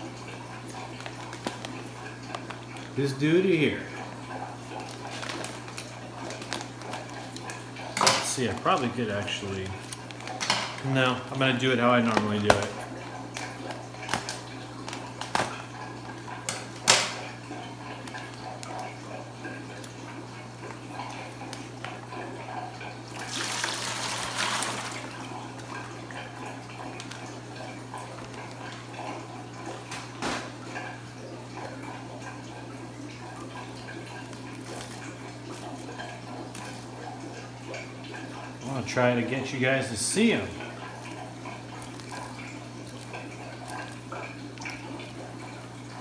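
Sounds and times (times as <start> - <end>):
water pouring into bucket: 17.2 - 29.9.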